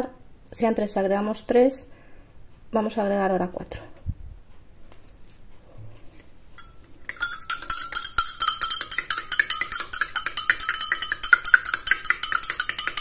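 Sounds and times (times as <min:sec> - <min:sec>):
metal rod clinking glass beaker: 0:06.6 - 0:13.0.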